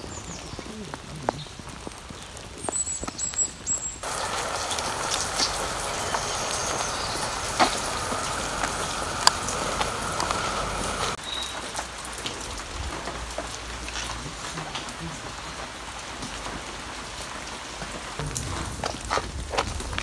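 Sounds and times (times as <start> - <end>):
leaf litter crackling and rustling: 4.0 - 17.1.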